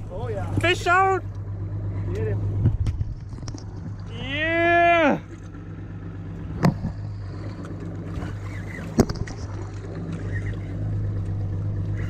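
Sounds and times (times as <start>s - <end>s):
outboard motor idling: 0.0s - 12.0s.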